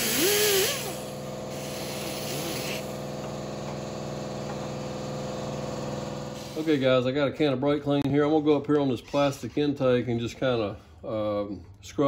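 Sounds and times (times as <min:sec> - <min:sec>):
die grinder scrubbing metal: 0:00.0 - 0:03.4.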